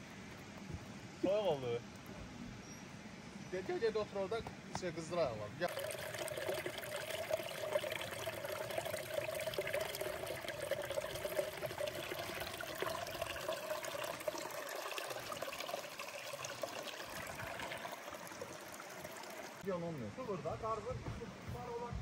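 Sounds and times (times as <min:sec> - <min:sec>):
water running and trickling: 0:05.6 - 0:19.8.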